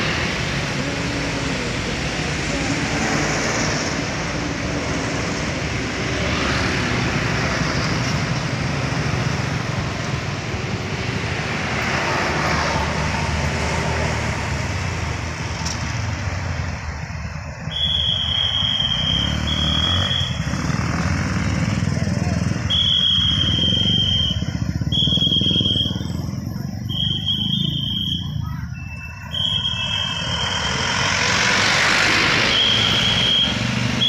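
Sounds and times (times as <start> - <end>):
bus passing: 0.0 - 34.0
lorry passing: 0.0 - 34.0
motorcycle engines running: 18.6 - 34.0.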